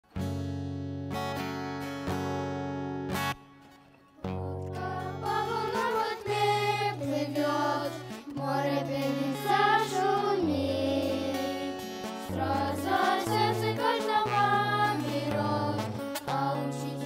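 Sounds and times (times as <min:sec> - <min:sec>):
strummed acoustic guitar: 0:00.1 - 0:17.0
children singing: 0:04.3 - 0:17.0.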